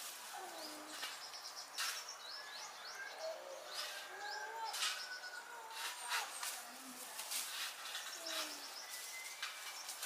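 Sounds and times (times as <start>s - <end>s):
low drawn-out cooing calls: 0.3s - 6.8s, 7.8s - 9.4s.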